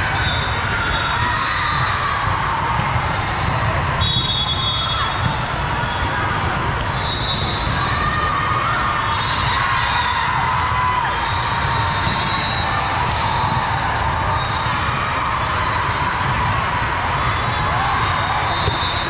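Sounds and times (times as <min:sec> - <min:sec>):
many voices: 0:00.0 - 0:19.0
volleyballs struck and bouncing: 0:02.2 - 0:04.0, 0:05.1 - 0:08.4, 0:11.4 - 0:14.0, 0:18.6 - 0:19.0
whistle blasts: 0:04.0 - 0:05.2, 0:06.8 - 0:07.7, 0:11.2 - 0:13.7, 0:14.3 - 0:14.8, 0:18.5 - 0:19.0.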